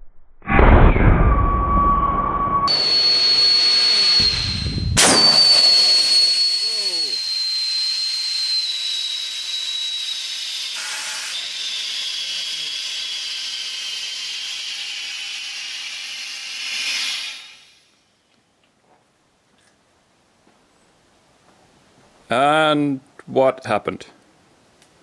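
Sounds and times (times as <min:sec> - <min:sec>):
high whistle falling in pitch: 0:00.5 - 0:12.7
high-pressure gas hissing: 0:02.7 - 0:08.0
sharp crack: 0:04.0 - 0:07.2.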